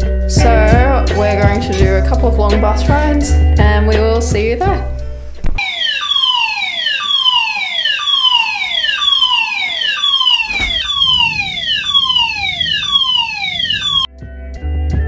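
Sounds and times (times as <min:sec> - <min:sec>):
fire alarm sweeping tone: 0:05.6 - 0:14.1.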